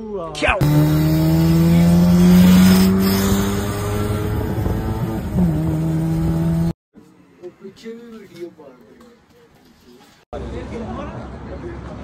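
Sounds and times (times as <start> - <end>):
car engine revving while driving: 0.6 - 6.8.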